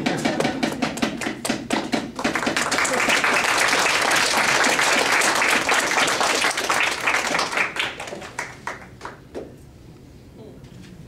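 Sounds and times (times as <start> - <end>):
audience applauding: 2.2 - 9.3.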